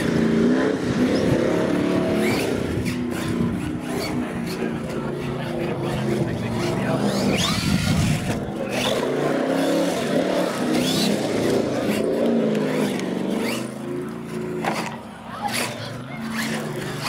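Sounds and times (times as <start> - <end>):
electric motor whining: 5.9 - 15.0.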